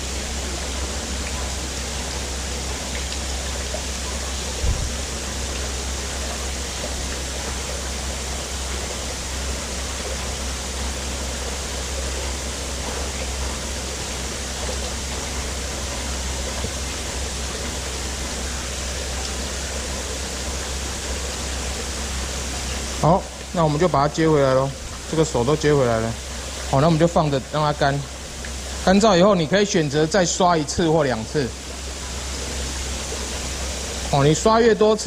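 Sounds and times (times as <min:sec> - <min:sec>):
water running into plastic tub: 0:00.0 - 0:35.0
low rumble: 0:04.6 - 0:05.1.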